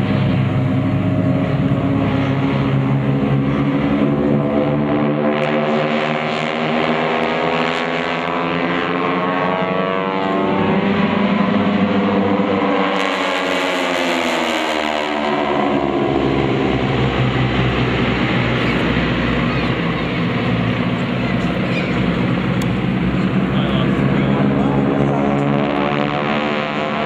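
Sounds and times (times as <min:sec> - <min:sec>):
radial plane engines passing overhead: 0:00.0 - 0:27.0.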